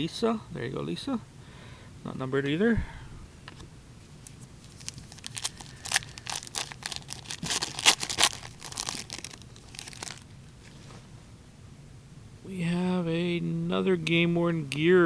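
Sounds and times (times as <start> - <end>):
packaging crinkling: 4.2 - 10.8.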